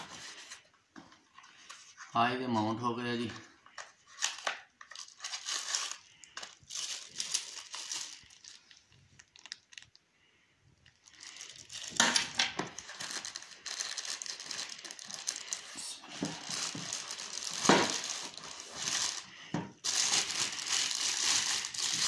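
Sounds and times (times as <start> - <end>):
plastic wrapping crinkling: 3.3 - 10.0, 10.8 - 22.0.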